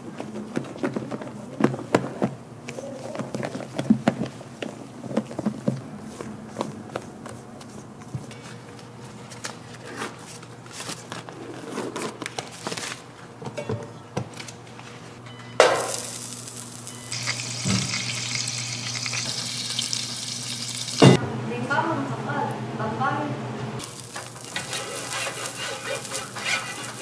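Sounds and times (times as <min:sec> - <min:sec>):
pancakes frying on a griddle: 0:15.8 - 0:21.0, 0:23.8 - 0:27.0
utensils clicking and scraping: 0:23.9 - 0:27.0.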